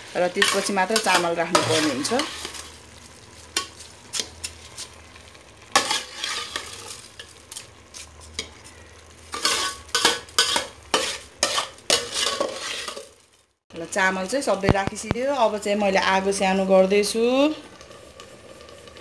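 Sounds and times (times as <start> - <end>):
metal spoon scraping bowl: 0.4 - 2.7, 5.8 - 6.9, 9.4 - 13.0.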